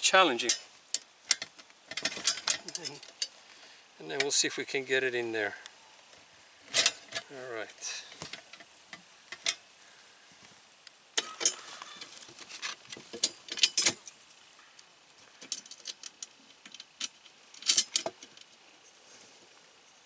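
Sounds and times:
metal bolts clinking and rattling: 0.3s - 3.4s, 6.7s - 7.3s, 11.2s - 14.2s, 15.4s - 18.5s.

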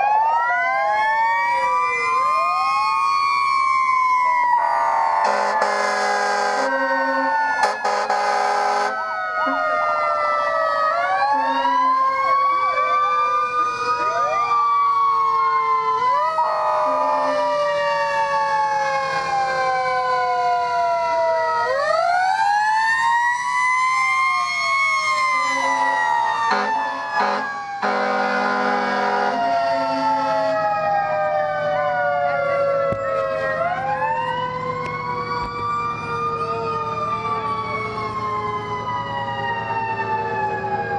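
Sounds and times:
fire truck sirens wailing: 0.0s - 40.9s
horn blasts: 5.2s - 9.6s, 25.5s - 30.4s.

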